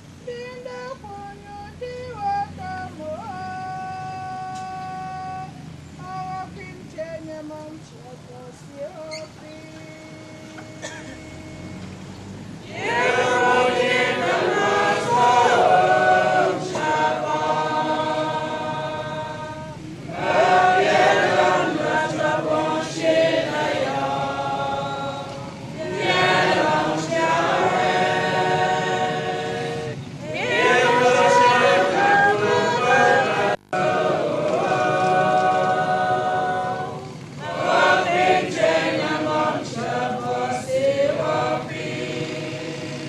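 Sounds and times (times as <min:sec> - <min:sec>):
congregation singing a hymn: 0:12.6 - 0:43.0.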